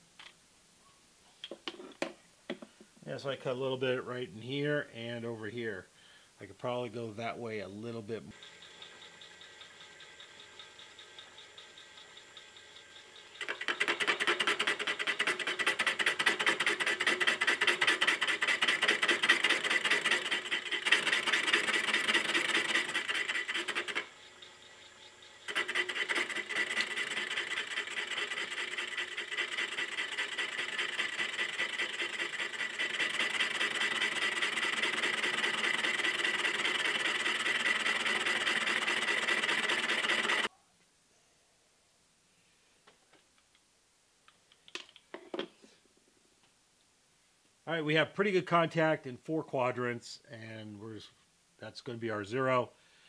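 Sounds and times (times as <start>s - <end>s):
milling machine boring metal: 8.4s - 40.5s.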